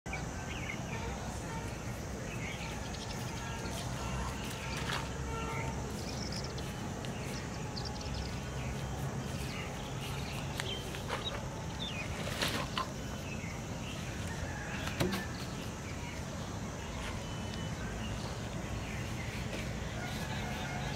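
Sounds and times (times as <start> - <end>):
bird chirps and calls: 0.1 - 12.1.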